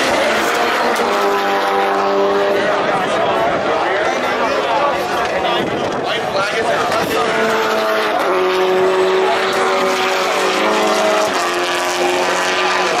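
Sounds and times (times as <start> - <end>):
race car engine high-revving: 0.0 - 4.2, 6.8 - 13.0.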